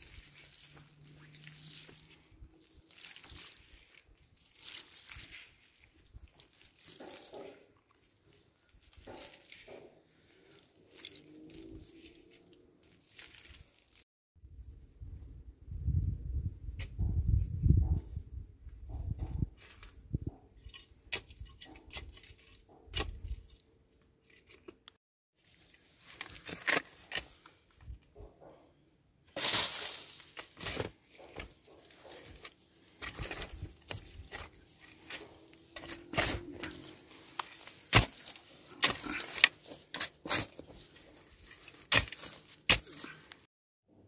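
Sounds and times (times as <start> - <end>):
dry stalks crackling: 0.0 - 14.0, 29.3 - 43.5
shovel digging dry soil: 0.0 - 14.0, 18.9 - 23.6, 25.4 - 28.0, 29.3 - 43.5.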